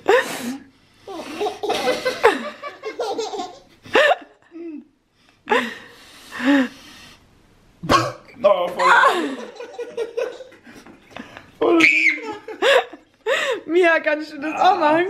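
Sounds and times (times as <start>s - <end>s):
baby laughing: 1.2s - 3.7s, 11.6s - 12.8s
adult laughing: 8.8s - 13.1s.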